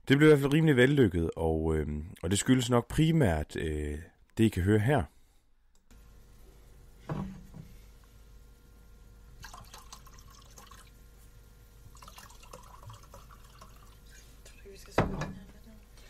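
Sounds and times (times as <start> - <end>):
wine pouring into a glass: 9.4 - 11.0, 11.8 - 14.3.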